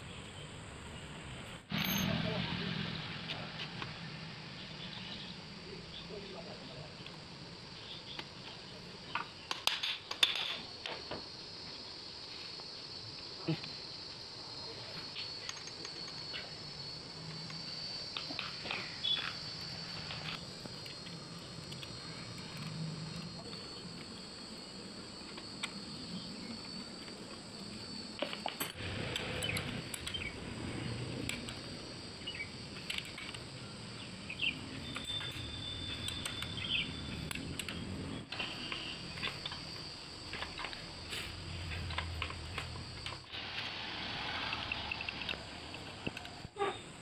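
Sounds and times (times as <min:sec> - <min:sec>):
metallic clinks of hand tools: 0:01.7 - 0:02.2.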